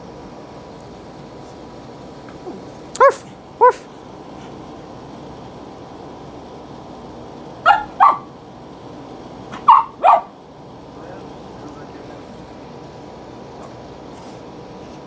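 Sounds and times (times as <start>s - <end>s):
dog barking high: 3.0s - 3.9s, 7.6s - 8.4s, 9.5s - 10.4s.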